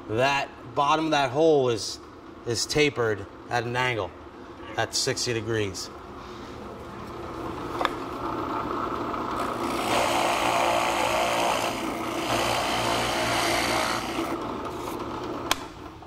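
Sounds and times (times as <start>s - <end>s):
drill press motor hum: 7.1s - 16.0s
drill bit cutting wood: 9.4s - 14.4s.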